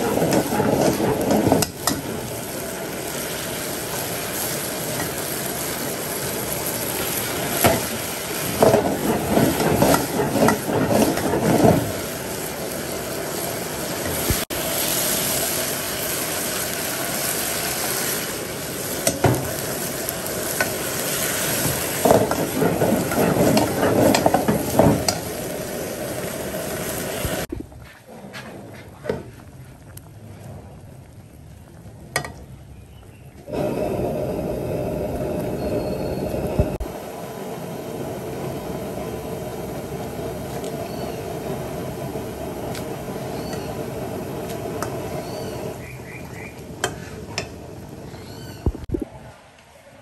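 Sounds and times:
utensil scraping in a pan: 0:00.0 - 0:02.2, 0:07.0 - 0:12.1, 0:20.6 - 0:25.4, 0:46.8 - 0:47.5
food sizzling in a pan: 0:00.0 - 0:27.5, 0:32.4 - 0:48.8.

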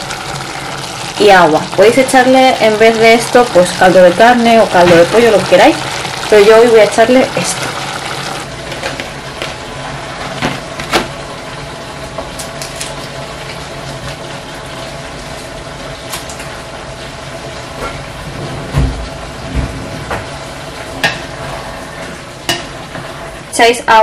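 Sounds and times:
stew sizzling in a pan: 0:00.0 - 0:18.3.

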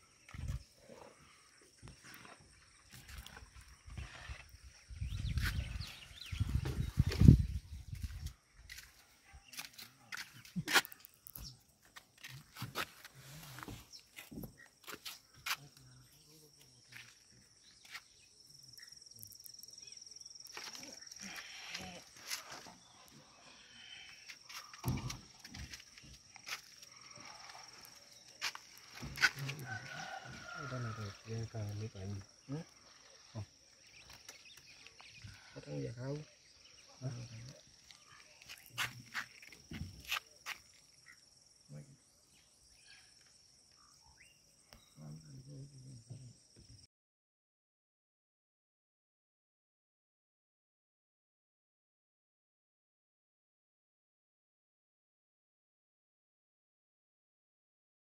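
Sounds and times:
high insect trill: 0:09.6 - 0:46.9.

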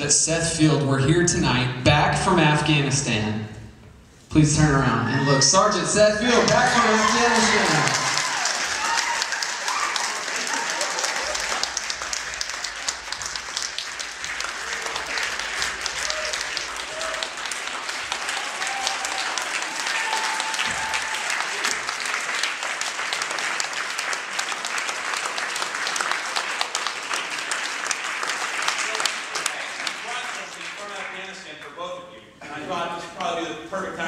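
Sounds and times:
audience applauding: 0:06.2 - 0:31.8.

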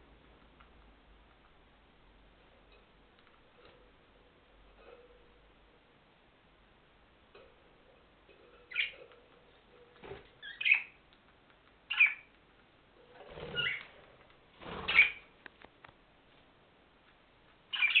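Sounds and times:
budgerigars chirping and squawking: 0:08.7 - 0:09.1, 0:10.4 - 0:11.0, 0:11.9 - 0:12.3, 0:13.3 - 0:13.9, 0:14.8 - 0:15.3, 0:17.7 - 0:18.0.

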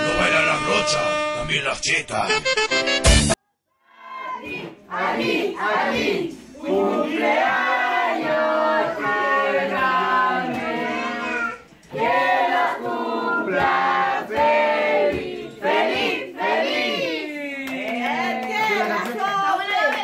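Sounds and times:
group singing birthday song: 0:04.0 - 0:19.2.

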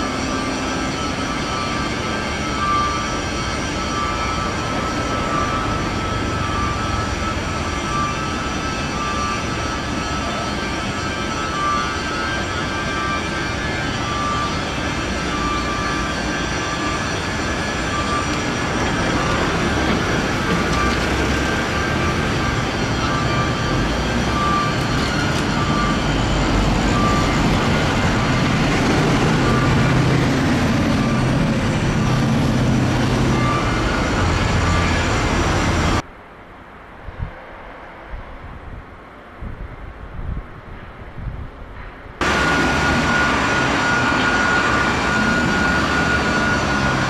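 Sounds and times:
shipyard machinery and heavy vehicles: 0:00.0 - 0:47.0
high beep: 0:26.9 - 0:27.6.

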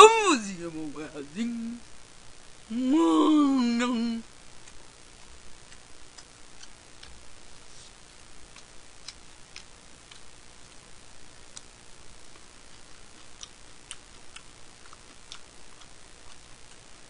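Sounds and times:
steady hiss: 0:00.0 - 0:17.0
eating clicks: 0:08.5 - 0:10.3.

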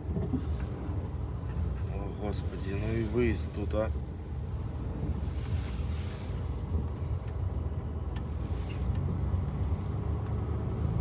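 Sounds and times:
truck diesel engine rumbling: 0:00.0 - 0:11.0.

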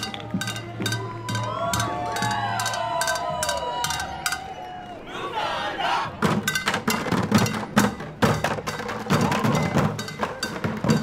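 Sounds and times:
voices shouting: 0:00.0 - 0:06.2.

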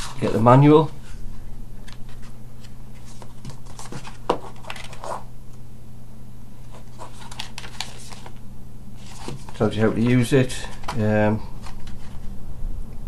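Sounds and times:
paper pages rustling: 0:00.0 - 0:05.3, 0:06.6 - 0:08.4, 0:09.0 - 0:12.4
steady low hum: 0:00.0 - 0:13.0.

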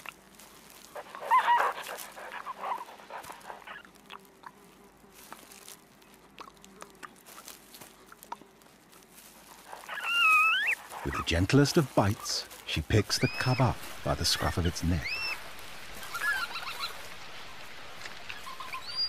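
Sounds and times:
faint clicks and rustles: 0:00.0 - 0:13.0
red panda squeaking: 0:09.9 - 0:11.3.

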